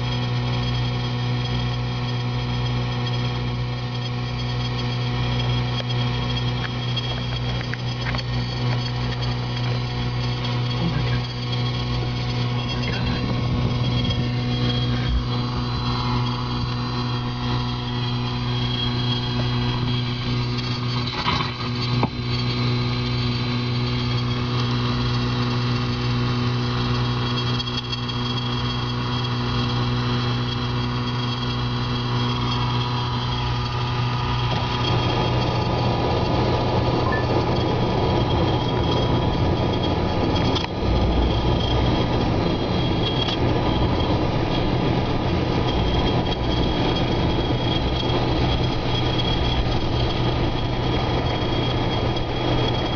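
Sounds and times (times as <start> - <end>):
car engine idling: 4.7 - 27.4.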